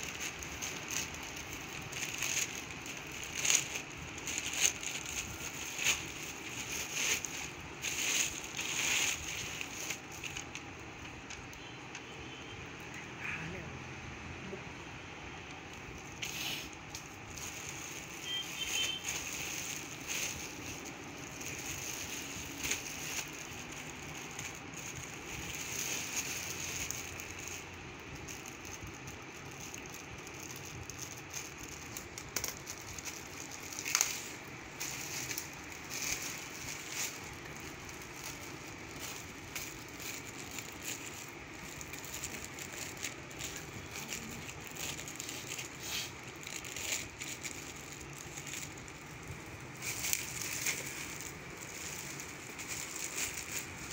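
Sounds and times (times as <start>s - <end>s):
plastic bag crinkling: 0.0s - 11.8s, 15.4s - 53.9s.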